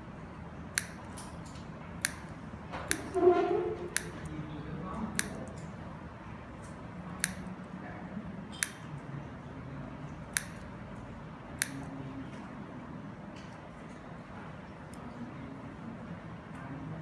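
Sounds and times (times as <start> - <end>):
scissors snipping plastic straw: 0.8 - 1.1, 2.0 - 2.3, 2.9 - 3.2, 5.2 - 5.5, 7.2 - 7.4, 10.3 - 10.6, 11.6 - 11.9.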